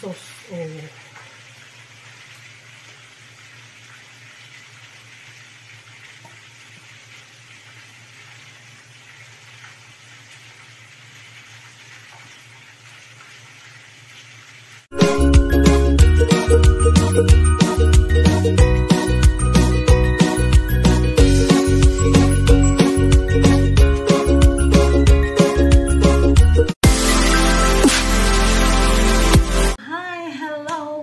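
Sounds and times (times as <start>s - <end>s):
sauce sizzling: 0.0s - 29.8s
upbeat music: 14.9s - 29.8s.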